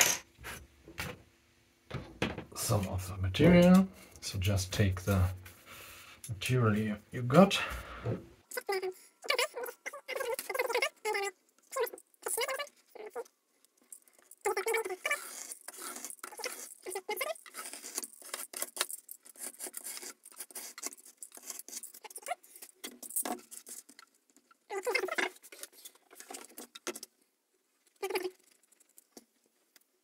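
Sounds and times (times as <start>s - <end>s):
knocks and rustles of handling: 0.0s - 1.3s, 1.9s - 4.0s, 17.4s - 30.0s
plastic clatter: 1.9s - 2.6s.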